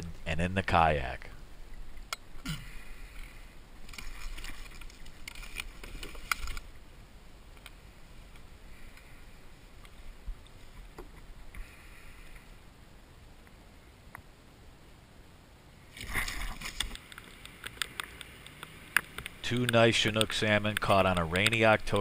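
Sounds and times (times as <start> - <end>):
water splashing and dripping: 3.8 - 6.6.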